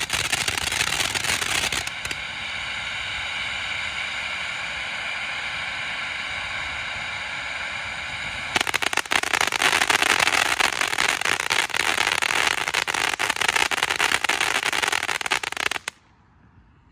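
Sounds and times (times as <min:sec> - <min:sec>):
loud dense crackling: 0:00.0 - 0:02.2, 0:08.6 - 0:15.9
firework fountain hissing: 0:00.0 - 0:16.4.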